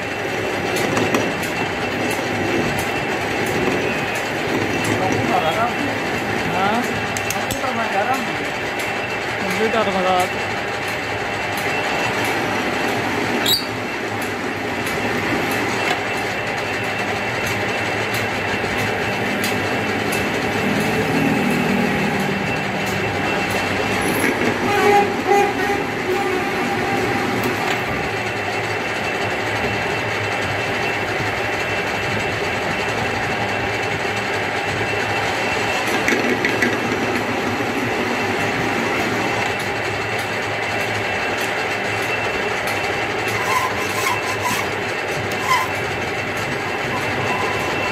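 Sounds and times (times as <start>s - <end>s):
metal lathe cutting thread: 42.7s - 47.9s.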